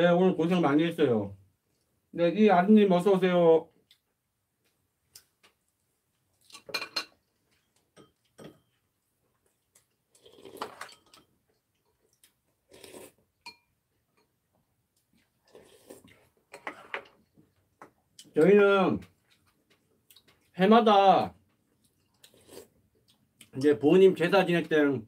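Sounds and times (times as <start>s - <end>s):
utensils clinking on ceramic bowls: 6.6s - 7.2s, 7.9s - 8.8s, 10.6s - 11.3s.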